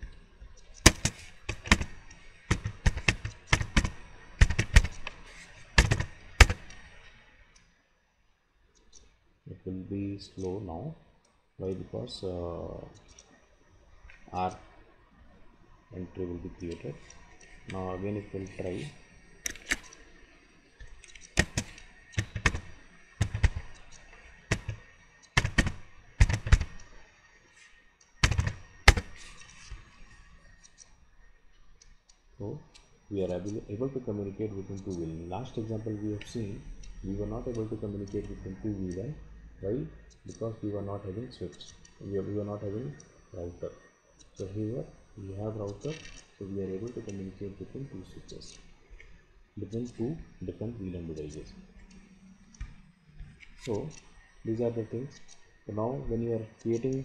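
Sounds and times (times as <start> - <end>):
computer keyboard typing: 0.6 - 7.0, 16.6 - 20.0, 20.8 - 26.9, 28.2 - 29.9.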